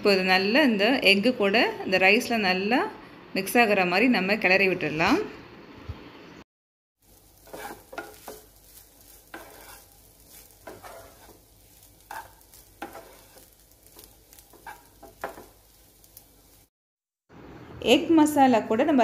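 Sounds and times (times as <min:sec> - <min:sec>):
faint sizzle from hot pan: 0:07.0 - 0:16.7
wooden spatula scraping frying pan: 0:07.1 - 0:16.6.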